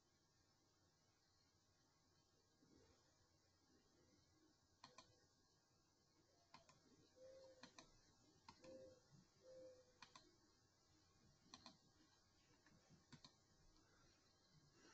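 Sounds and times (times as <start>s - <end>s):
computer mouse clicks: 4.8s - 5.2s, 6.5s - 9.0s, 9.6s - 10.4s, 11.4s - 13.8s.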